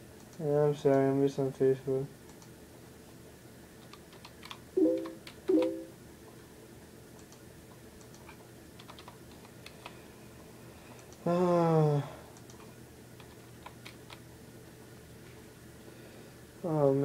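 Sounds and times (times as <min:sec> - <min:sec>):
typing on computer keyboard: 0:08.0 - 0:09.2.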